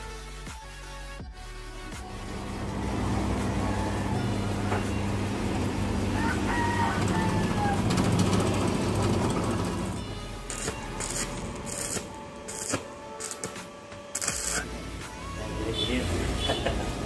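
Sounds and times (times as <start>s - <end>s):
rooster crowing: 5.9s - 8.8s
welding arc crackling: 7.0s - 14.8s.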